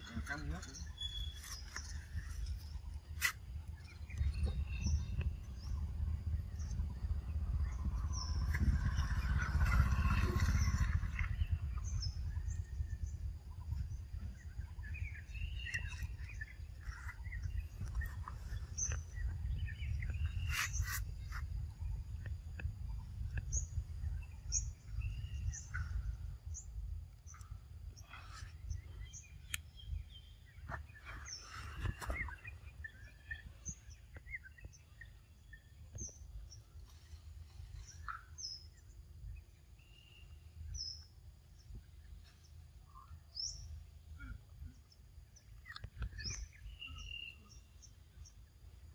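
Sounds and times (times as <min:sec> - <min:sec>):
steady low rumble: 0:00.0 - 0:44.2
scattered bird calls: 0:00.0 - 0:48.9
short high bird chirps: 0:00.8 - 0:01.9.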